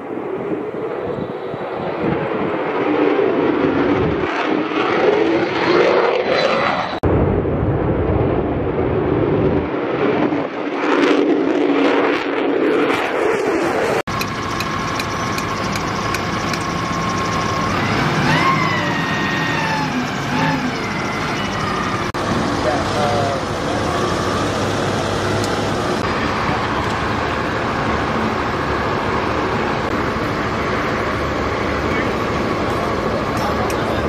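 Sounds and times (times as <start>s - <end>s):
fighter jet flying overhead: 0.0s - 34.0s
thin high steady tone: 14.1s - 17.8s
ground vehicle engine running: 14.1s - 34.0s.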